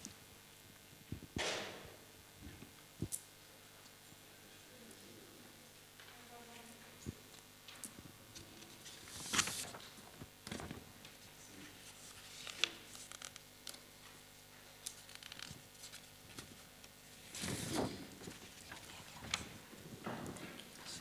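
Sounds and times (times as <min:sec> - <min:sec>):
paper rustling: 0:08.4 - 0:14.2, 0:14.8 - 0:21.0.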